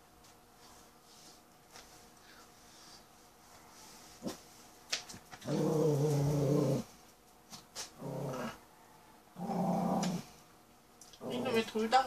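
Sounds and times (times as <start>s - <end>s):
small dog growling: 5.4s - 7.0s, 8.0s - 10.4s, 11.2s - 11.7s.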